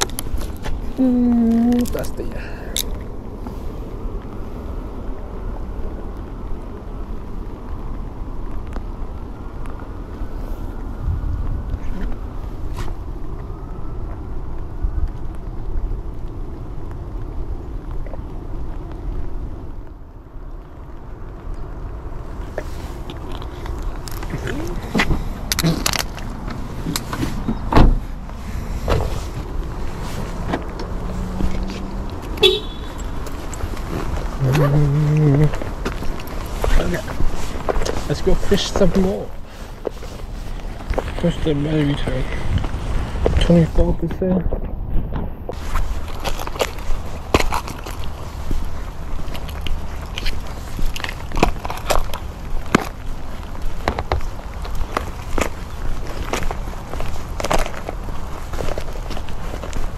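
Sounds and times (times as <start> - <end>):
wind buffeting microphone: 0.0 - 19.9, 20.6 - 59.9
car door shutting: 24.9 - 28.2, 28.8 - 29.5.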